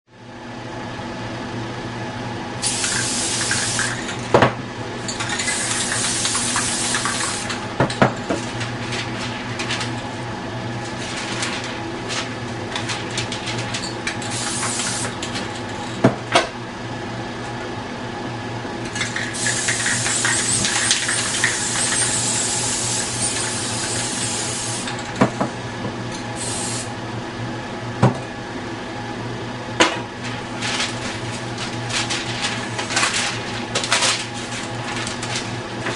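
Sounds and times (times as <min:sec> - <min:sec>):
spray-paint cans hissing: 0:02.6 - 0:04.0, 0:05.3 - 0:07.5, 0:14.3 - 0:15.1, 0:19.2 - 0:24.9, 0:26.4 - 0:26.9
steady hum: 0:28.5 - 0:35.9.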